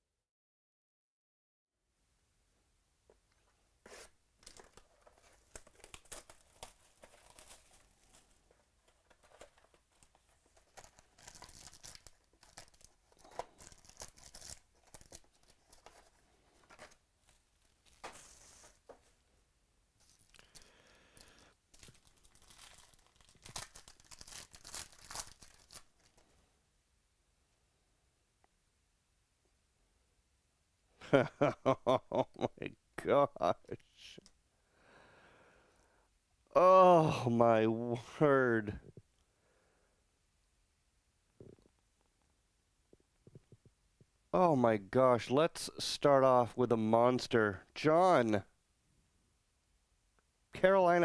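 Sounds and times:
foil wrapper crinkling and tearing: 4.4s - 18.8s, 20.0s - 26.2s.

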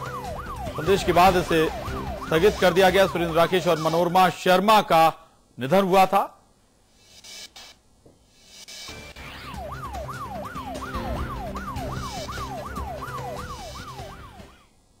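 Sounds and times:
siren wail sweeping down: 0.0s - 3.8s, 9.2s - 14.6s
low pounding beat: 9.9s - 14.1s.

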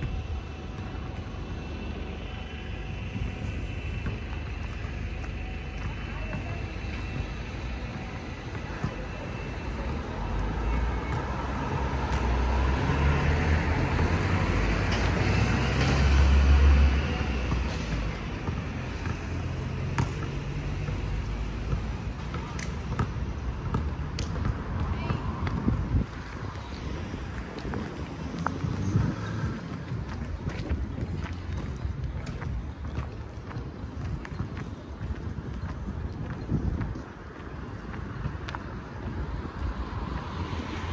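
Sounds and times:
road traffic: 0.0s - 40.9s
vehicle passing: 10.5s - 18.4s
wind rumbling on microphone: 24.1s - 40.9s.

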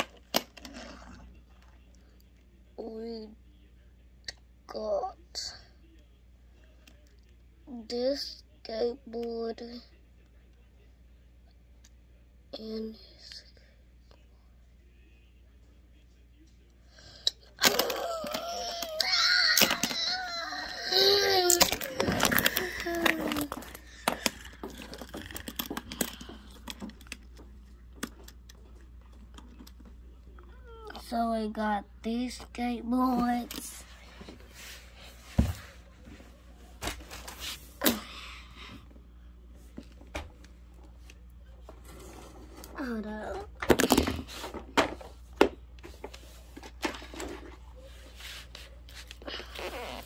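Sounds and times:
plastic toys clicking on wooden floor: 21.3s - 27.4s
rubbing of objects moved: 44.2s - 50.0s.

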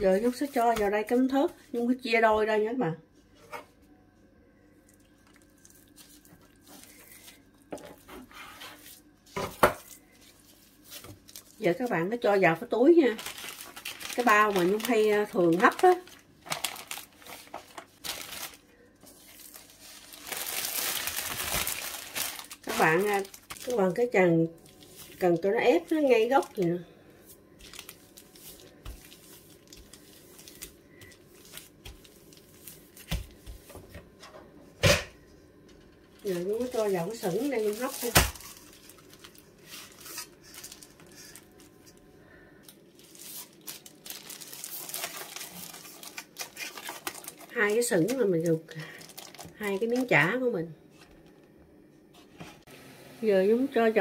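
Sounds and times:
plastic bag crinkling: 4.9s - 8.1s, 8.8s - 33.5s, 36.2s - 42.0s, 42.6s - 50.4s.

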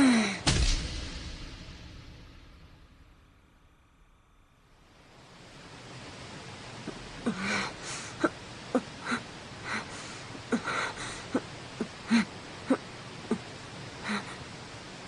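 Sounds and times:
steady hiss: 0.0s - 15.0s
heavy panting breaths: 9.0s - 11.4s.

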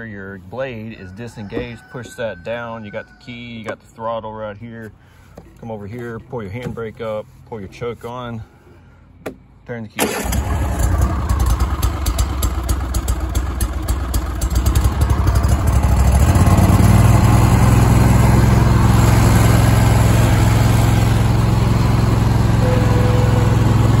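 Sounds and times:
mower engine running: 10.0s - 24.0s.

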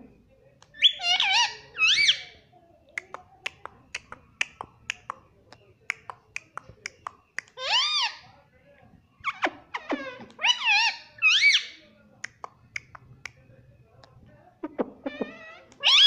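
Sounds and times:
parakeet calls: 0.8s - 2.3s, 9.2s - 11.8s, 15.0s - 16.0s.

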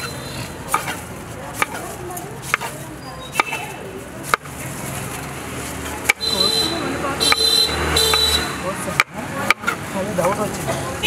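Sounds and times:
knife chopping on wooden block: 0.7s - 1.0s, 1.6s - 2.7s, 3.4s - 3.7s, 8.9s - 10.4s.

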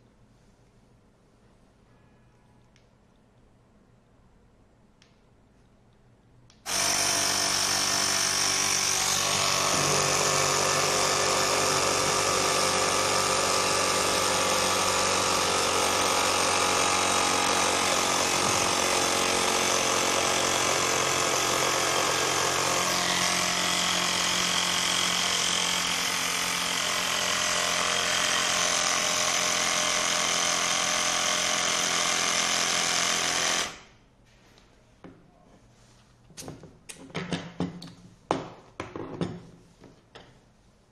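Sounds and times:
small motorised machine running: 6.7s - 33.8s.

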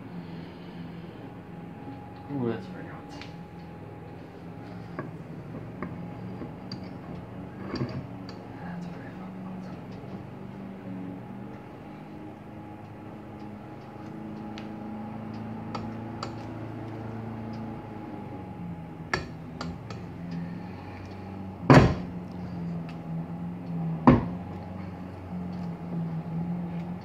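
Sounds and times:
steady hum: 0.0s - 27.0s
loud knocks of metal parts: 21.7s - 22.1s.

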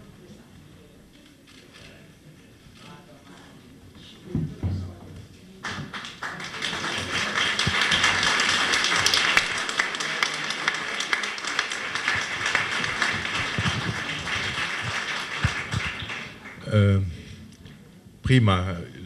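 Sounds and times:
audience applauding: 5.6s - 17.0s.

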